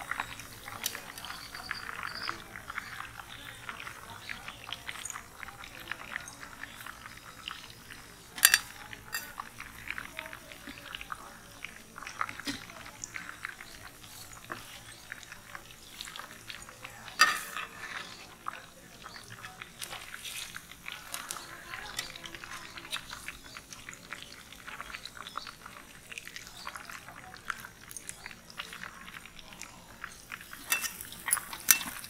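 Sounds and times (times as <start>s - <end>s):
fish deep-frying in oil: 0.0s - 32.0s
metal ladle clinking on pot: 8.4s - 9.4s, 17.2s - 17.8s, 30.6s - 32.0s.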